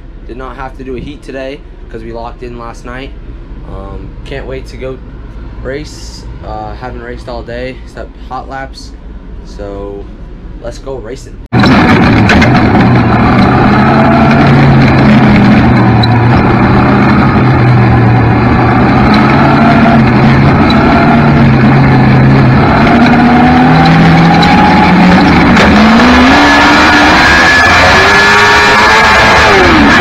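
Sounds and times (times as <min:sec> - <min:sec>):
other racing engines: 0:11.6 - 0:30.0
race car engine running: 0:11.6 - 0:30.0.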